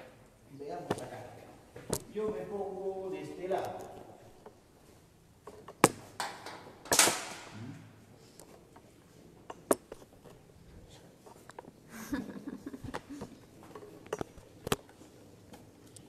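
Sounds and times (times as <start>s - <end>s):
metal instruments clicking and clinking: 13.7s - 14.8s.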